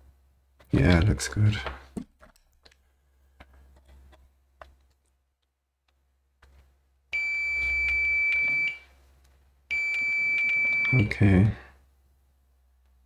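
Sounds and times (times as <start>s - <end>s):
multimeter continuity beep: 7.1s - 8.8s, 9.7s - 11.2s.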